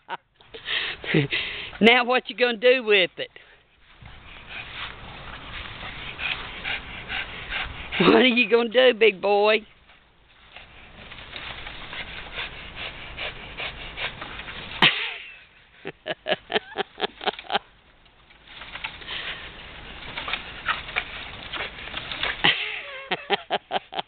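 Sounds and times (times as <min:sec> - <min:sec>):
tree limb rustling: 0:02.6 - 0:24.0
dog breathing: 0:03.4 - 0:08.6, 0:09.8 - 0:14.8.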